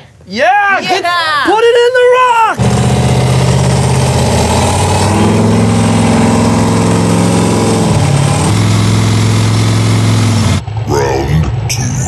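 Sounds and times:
off-road vehicle engine running: 0:02.6 - 0:12.0.

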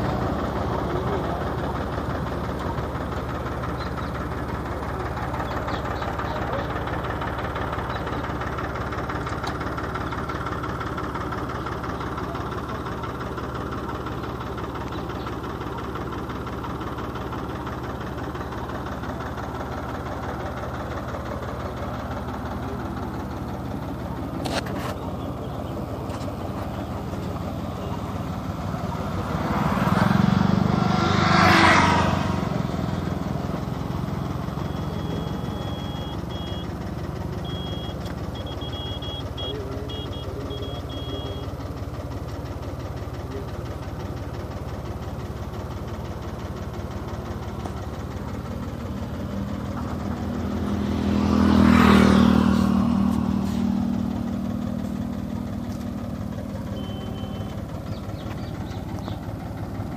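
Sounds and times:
vehicle engine running: 0:00.0 - 0:59.9
vehicle passing by: 0:26.1 - 0:36.7, 0:48.0 - 0:56.2.

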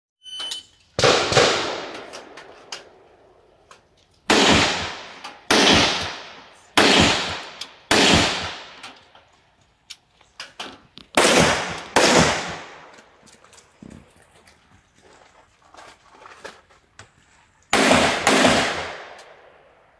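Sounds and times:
electronic beep: 0:00.2 - 0:00.8
gunshots echoing: 0:01.0 - 0:03.2, 0:04.3 - 0:08.8, 0:11.2 - 0:13.0, 0:17.7 - 0:19.8.

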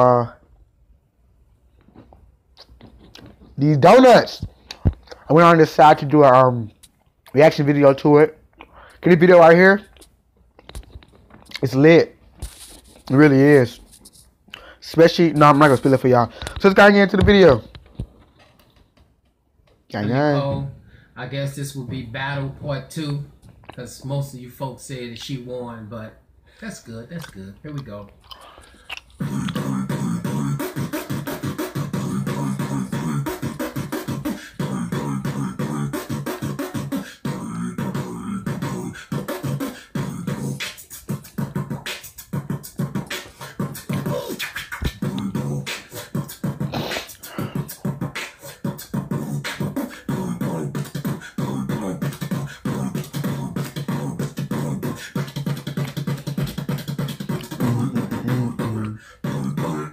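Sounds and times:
man beatboxing: 0:14.8 - 0:17.6, 0:29.1 - 0:59.9.

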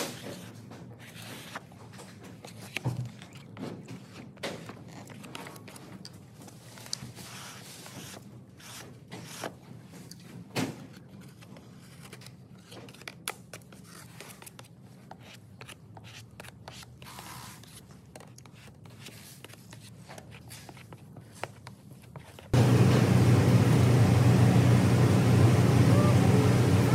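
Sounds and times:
low steady hum: 0:22.6 - 0:26.9.

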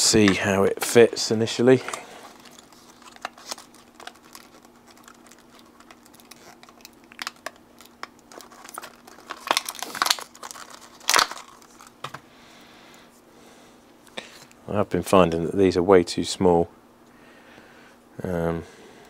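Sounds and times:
plastic packaging crinkling: 0:01.1 - 0:12.2
sharp crackle: 0:02.3 - 0:12.0.

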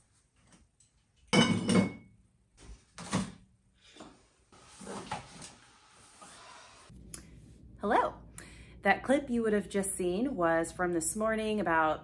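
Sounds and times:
dishes clattering: 0:01.3 - 0:02.0.

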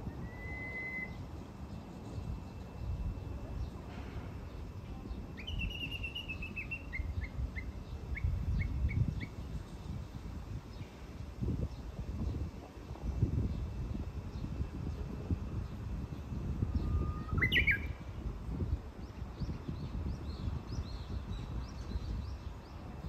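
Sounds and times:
bird singing: 0:00.0 - 0:03.8, 0:04.5 - 0:09.9, 0:15.6 - 0:18.2, 0:19.0 - 0:23.0.

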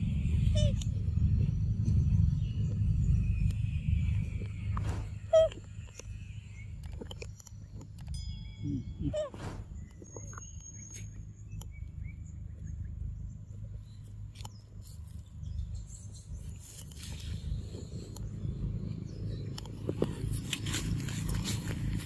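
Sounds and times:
pitched bird calls: 0:00.0 - 0:01.0, 0:01.8 - 0:07.8, 0:08.4 - 0:12.9
steady low rumble: 0:00.0 - 0:22.0.

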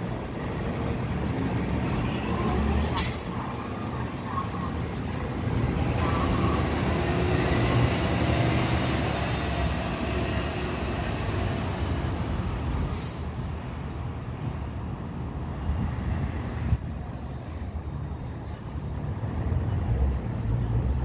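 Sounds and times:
bus driving off: 0:00.0 - 0:21.0
short sharp hiss: 0:03.0 - 0:03.4, 0:12.9 - 0:13.3.

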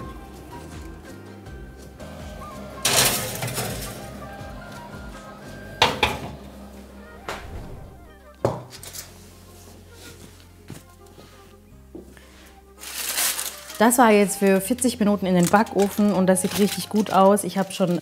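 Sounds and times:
background music: 0:00.0 - 0:18.0
oven door shutting: 0:02.1 - 0:08.2
metal pan scraping on oven rack: 0:02.8 - 0:04.3.

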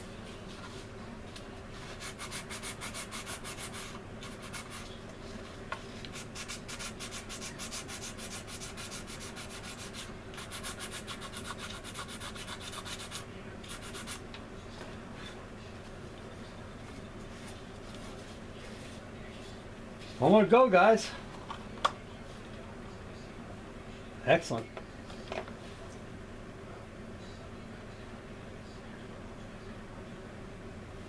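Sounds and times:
hand sanding strokes: 0:01.8 - 0:04.9, 0:06.1 - 0:14.2.

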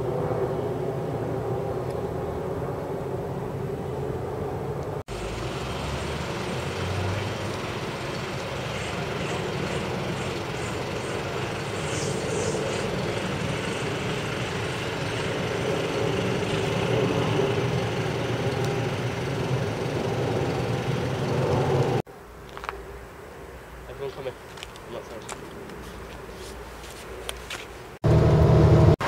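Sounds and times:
jet rumble overhead: 0:00.0 - 0:22.1.

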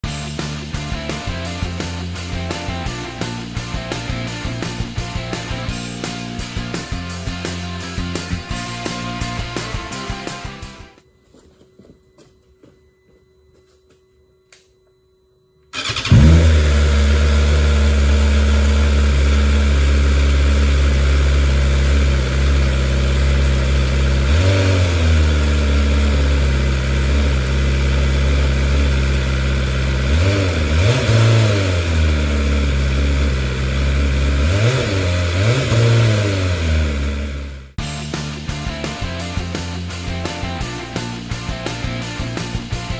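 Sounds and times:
motorcycle engine idling: 0:00.0 - 0:10.7, 0:15.7 - 0:42.9
motorcycle engine starting: 0:00.0 - 0:11.0, 0:15.7 - 0:42.9.

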